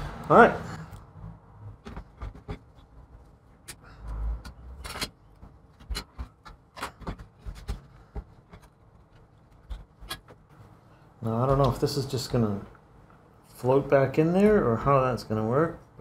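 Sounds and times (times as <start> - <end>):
tools clicking and tapping on workbench: 4.4 - 10.4.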